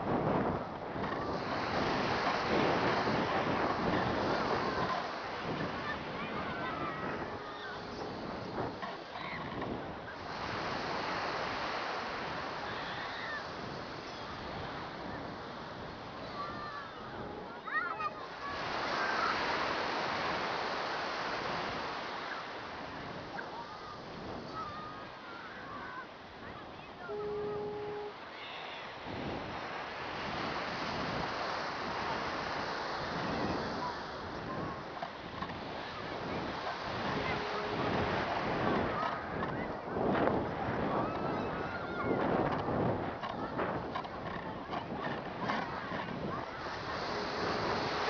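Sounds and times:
wind rushing over microphone: 0.0 - 28.2, 29.0 - 48.0
surf: 0.0 - 48.0
steady tone: 27.1 - 28.2.

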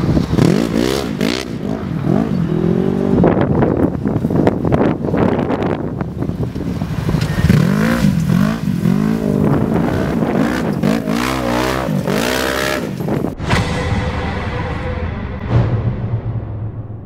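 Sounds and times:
engine revving: 0.0 - 3.4, 7.3 - 13.4.

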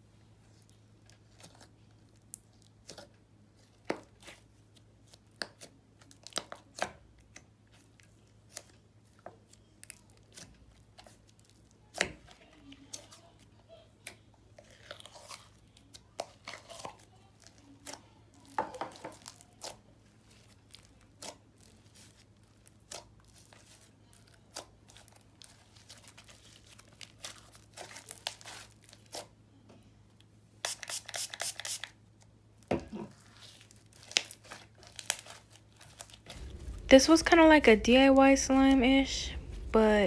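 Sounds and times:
slime clicking and crackling: 33.4 - 36.9.

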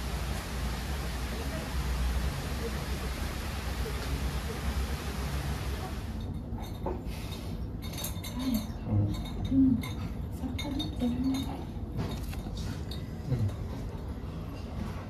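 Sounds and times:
faint low voices: 1.0 - 6.2
light clinks of tableware: 6.2 - 14.7.

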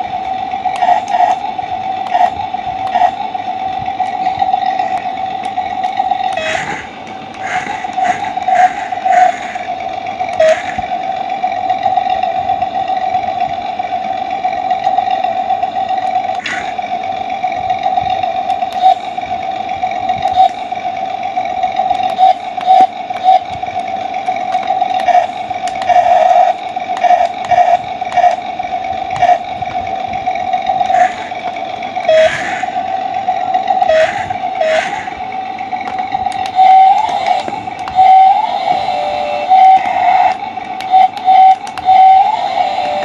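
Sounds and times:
toy gear motors whining: 0.0 - 20.8, 21.6 - 43.0
sharp clicks: 24.2 - 26.2, 35.9 - 38.1, 39.5 - 42.0.

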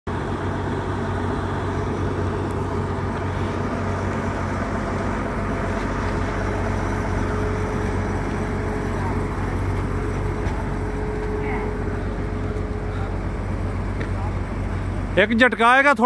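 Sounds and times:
heavy diesel engines humming: 0.1 - 16.0.

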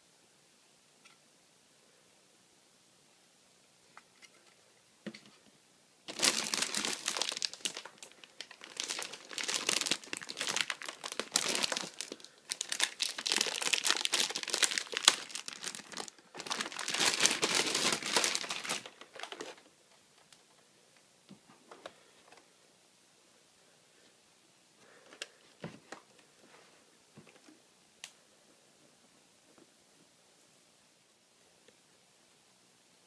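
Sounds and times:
plastic bag crinkling: 6.0 - 20.5.

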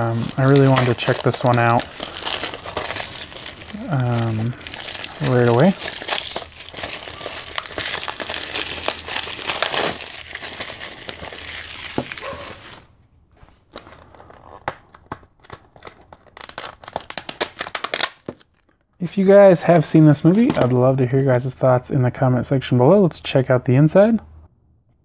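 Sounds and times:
plastic wrap crinkling: 0.0 - 12.9, 13.6 - 18.8.

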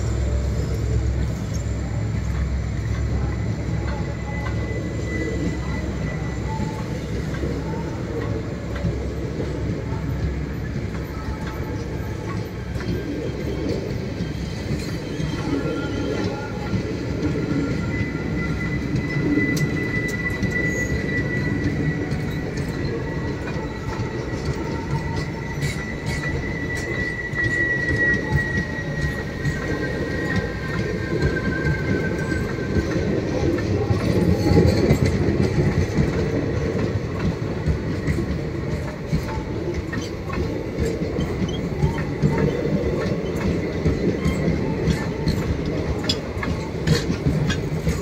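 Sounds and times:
high wheel squeal: 0.0 - 48.0
train coaches rumbling past: 0.0 - 48.0
wheels clicking over rail joints: 18.6 - 48.0.

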